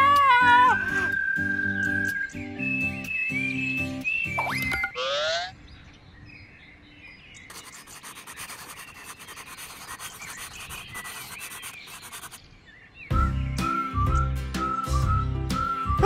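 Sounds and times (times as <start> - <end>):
rising whistle glide: 0.5 - 3.6
birds chirping faintly: 0.5 - 13.8
pencil scratching on paper: 7.5 - 12.4.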